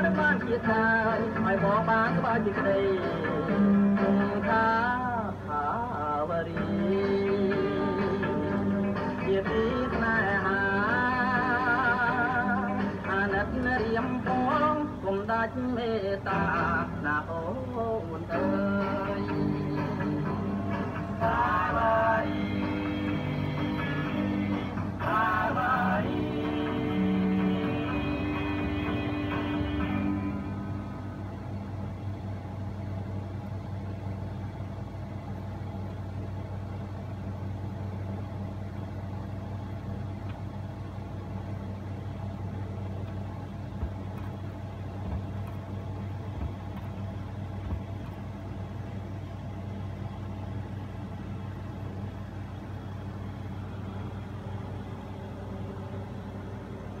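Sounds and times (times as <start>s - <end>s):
music: 0.0s - 5.0s, 6.2s - 15.3s, 16.2s - 31.4s
low hum: 0.0s - 57.0s
record surface noise: 0.0s - 57.0s.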